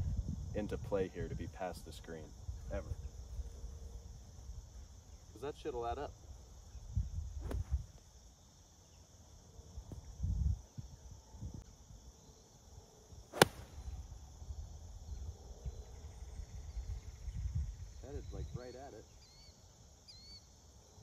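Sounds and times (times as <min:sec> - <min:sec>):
insects chirring: 0:00.0 - 0:21.0
golf club striking ball: 0:13.3 - 0:13.8.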